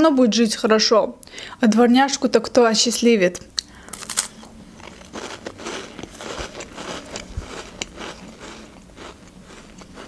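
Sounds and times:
chewing crisp crackles: 3.6s - 10.0s
cracker crunching bite: 3.9s - 10.0s.

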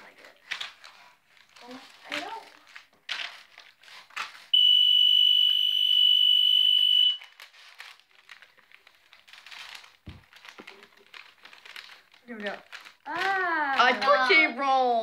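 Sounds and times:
wrapping paper crinkling: 0.0s - 4.6s, 7.1s - 14.4s
high-pitched timer alarm tone: 4.6s - 7.3s.

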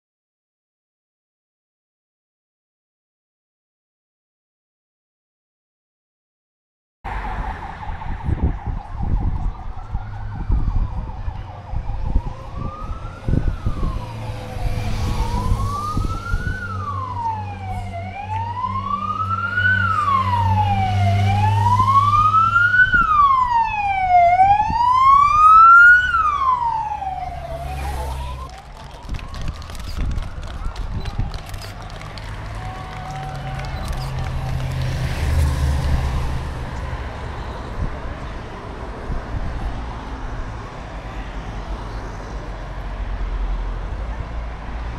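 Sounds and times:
wailing siren: 7.1s - 36.9s.

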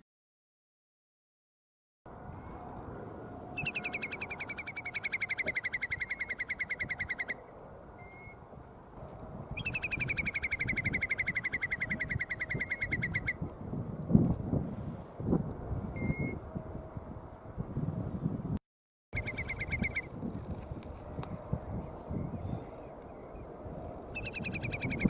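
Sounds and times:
low wind rumble: 2.1s - 18.6s, 19.2s - 25.0s
bird whistled trills: 3.6s - 8.4s, 9.6s - 13.4s, 15.9s - 16.4s, 19.2s - 20.1s, 24.1s - 25.0s.

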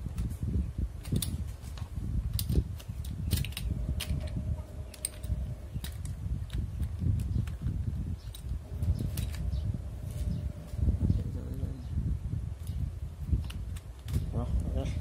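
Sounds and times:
small parts clicking and tapping: 1.0s - 9.5s
low rumble: 3.3s - 13.4s.

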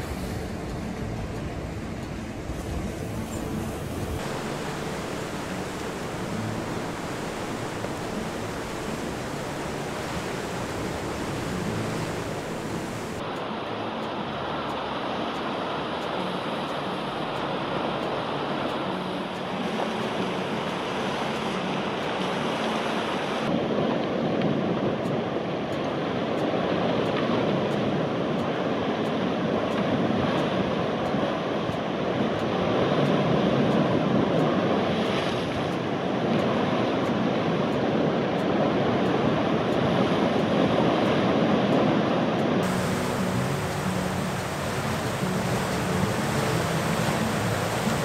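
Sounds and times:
wind on microphone: 0.0s - 13.2s, 23.3s - 48.0s
sea waves washing on shore: 0.0s - 48.0s.

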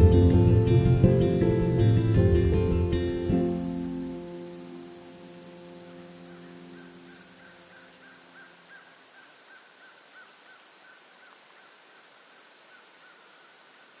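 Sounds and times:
sustained music notes: 0.0s - 8.0s
crickets and insects chirping: 0.0s - 14.0s
high insect trill: 0.0s - 14.0s.

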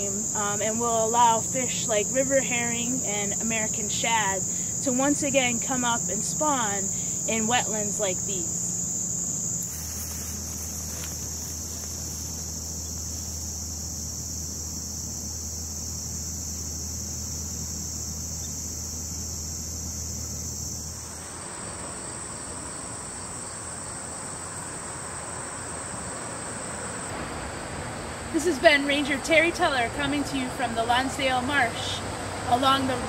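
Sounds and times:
wide hiss: 0.0s - 18.3s
low hum: 0.0s - 23.4s
insects trilling: 0.0s - 33.0s.

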